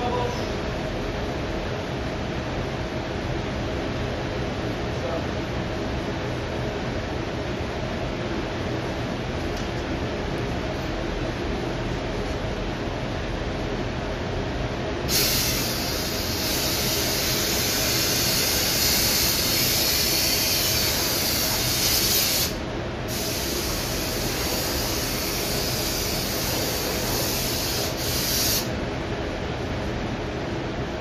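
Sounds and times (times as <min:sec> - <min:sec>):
ventilation low rumble: 0:00.0 - 0:31.0
compressed air hissing from air gun: 0:15.1 - 0:28.7.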